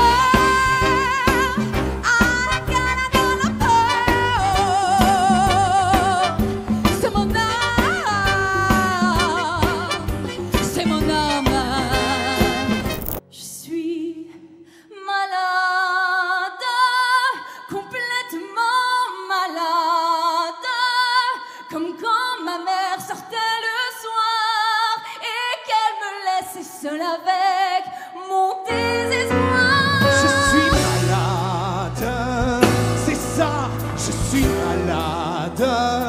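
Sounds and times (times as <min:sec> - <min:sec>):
band with bass and drums: 0:00.0 - 0:13.2, 0:29.6 - 0:36.0
woman singing with vibrato: 0:00.0 - 0:35.9.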